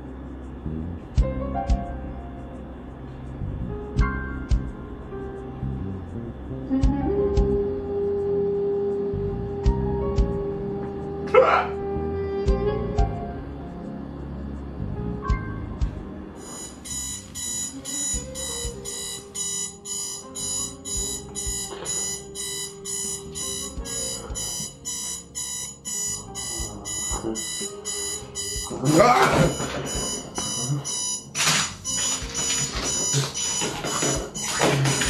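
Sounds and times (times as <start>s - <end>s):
alarm clock beeping: 16.4s - 35.0s.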